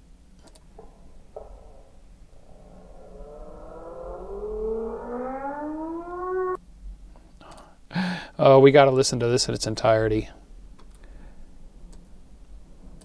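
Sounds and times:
slowed bird call low rising tone: 0:00.8 - 0:06.6.

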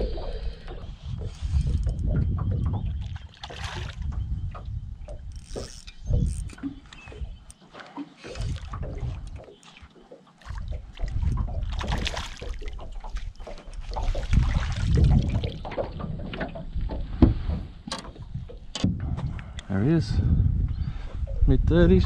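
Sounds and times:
wind buffeting microphone: 0:00.0 - 0:07.5, 0:08.2 - 0:09.6, 0:10.5 - 0:22.0.

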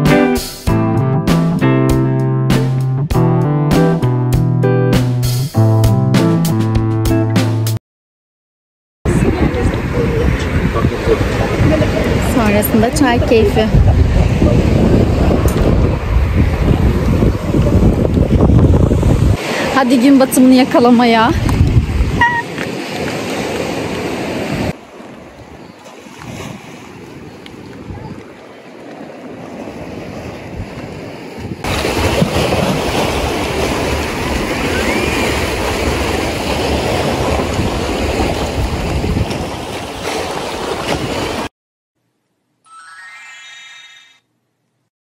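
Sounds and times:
wind on microphone: 0:09.1 - 0:19.8, 0:20.6 - 0:40.0
waves washing against rocks: 0:25.8 - 0:41.5
short rising chime: 0:42.7 - 0:44.2.

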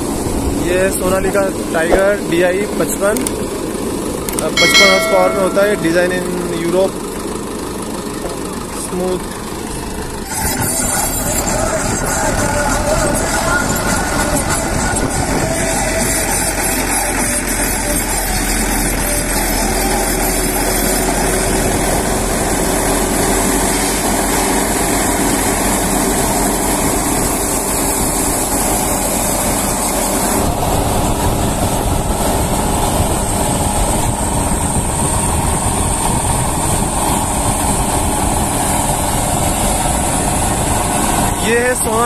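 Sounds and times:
tractor diesel engine running: 0:00.0 - 0:42.0.

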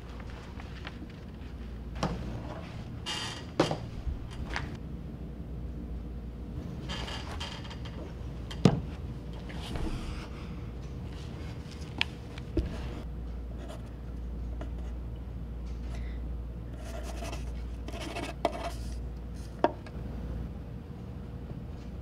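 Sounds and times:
low room hum: 0:00.0 - 0:22.0
pencil scratching on paper: 0:16.8 - 0:18.9.

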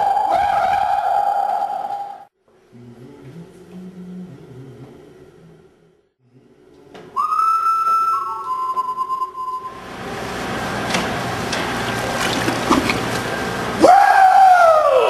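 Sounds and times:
long high whistle blast: 0:07.1 - 0:10.0
noisy wash: 0:09.8 - 0:15.0.

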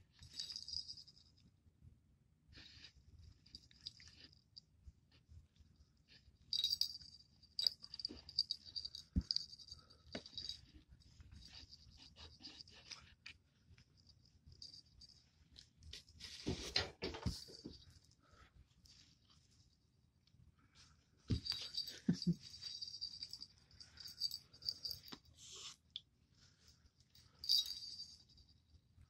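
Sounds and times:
jingle bell jingling: 0:00.2 - 0:01.3, 0:06.5 - 0:10.7, 0:21.3 - 0:25.2, 0:27.2 - 0:28.6.

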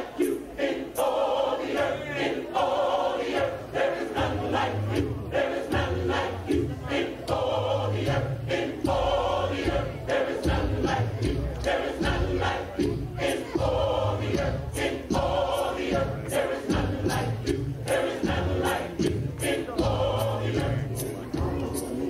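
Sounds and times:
gospel choir singing: 0:00.0 - 0:22.0
deep bass notes: 0:04.2 - 0:22.0.

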